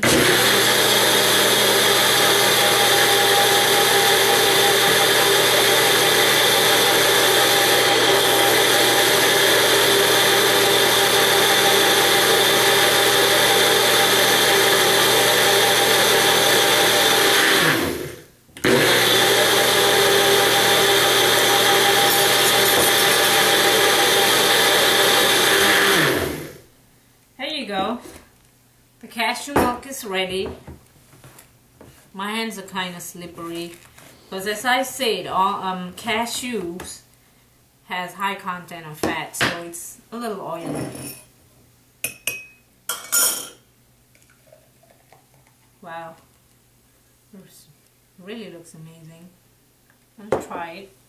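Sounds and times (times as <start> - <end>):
blender motor running: 0.0 - 26.6.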